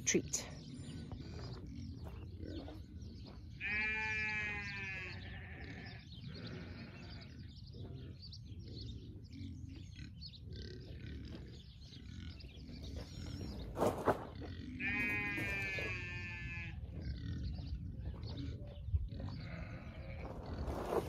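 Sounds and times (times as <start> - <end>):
sheep bleating: 3.5 - 7.6, 14.8 - 16.9, 19.1 - 20.6.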